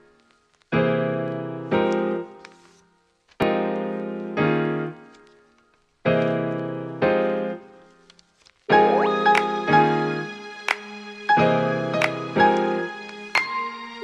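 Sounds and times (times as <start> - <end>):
keyboard chords: 3.4 - 5.2, 8.7 - 14.0.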